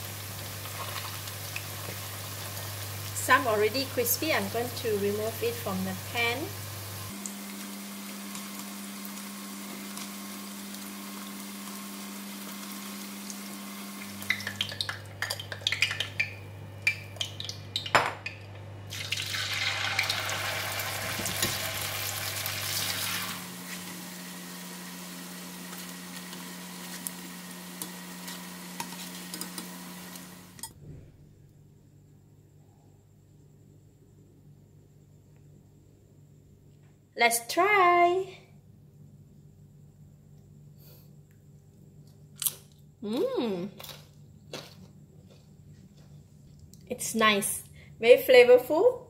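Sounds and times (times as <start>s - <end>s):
vegetable slices sizzling in oil: 0.0s - 16.2s, 18.9s - 30.6s.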